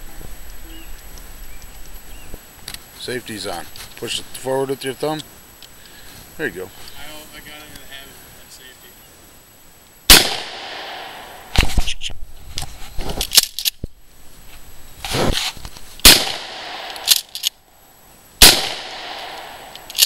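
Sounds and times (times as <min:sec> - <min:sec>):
shotgun bangs: 0:10.1 - 0:11.4, 0:16.0 - 0:17.2, 0:18.4 - 0:19.7.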